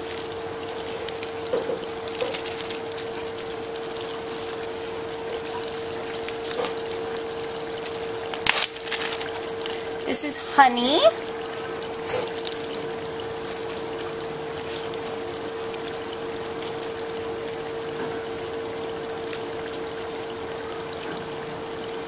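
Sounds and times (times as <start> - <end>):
plastic bag rustling: 0.0 - 17.3
constant hum: 0.0 - 22.0
onions sizzling in oil: 0.0 - 22.0.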